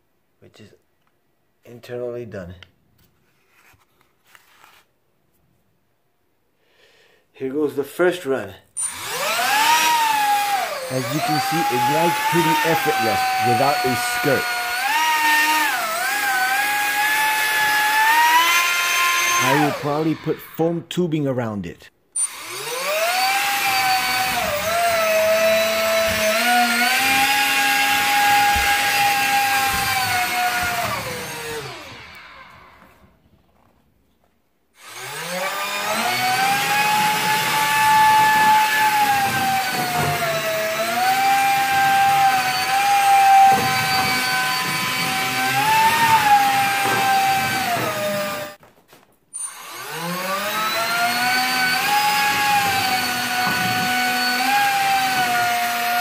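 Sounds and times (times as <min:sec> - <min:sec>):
small electric motor whine: 0:49.4 - 0:50.8.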